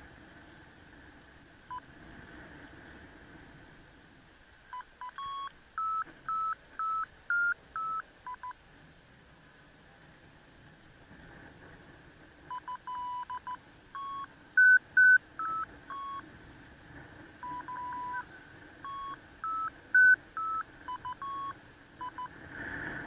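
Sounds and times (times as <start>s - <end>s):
variometer beeping: 1.7s - 1.9s, 4.7s - 8.6s, 12.5s - 16.2s, 17.4s - 22.4s
short electronic beeps: 4.7s - 8.6s, 12.5s - 16.2s, 17.4s - 22.3s.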